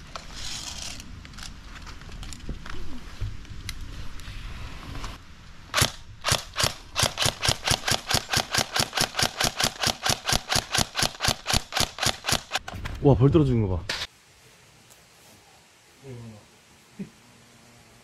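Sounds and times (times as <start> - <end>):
airsoft rifle firing: 5.7 - 12.6.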